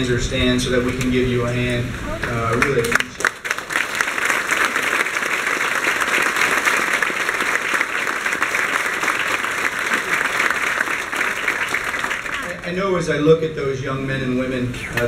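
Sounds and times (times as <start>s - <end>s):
audience applauding: 2.3s - 12.7s.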